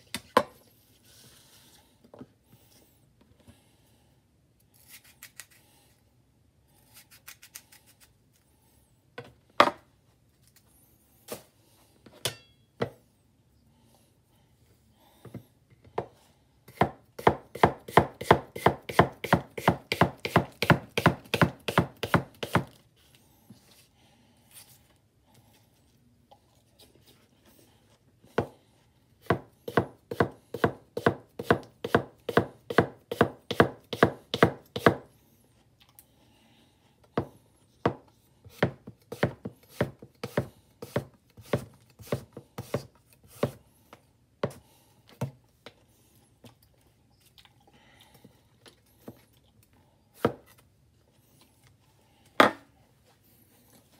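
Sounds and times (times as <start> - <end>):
knife slicing apple on board: 16.7 - 22.8, 29.2 - 35.1, 37.2 - 43.6.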